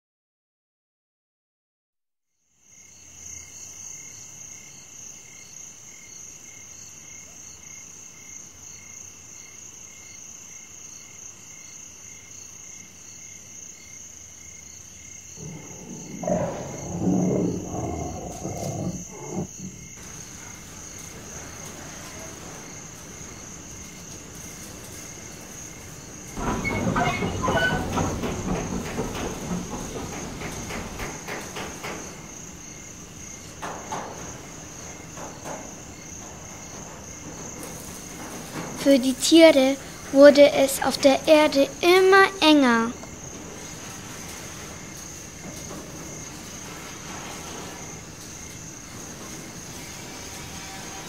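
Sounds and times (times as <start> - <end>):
insects chirping: 2.6 - 51.0
large animal roaring: 15.4 - 20.0
train rattling past: 15.4 - 51.0.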